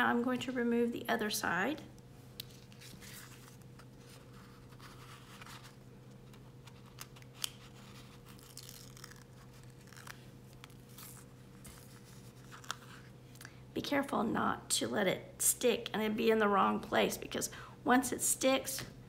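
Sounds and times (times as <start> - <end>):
backing sheet rustling and crinkling: 2.5 - 13.2.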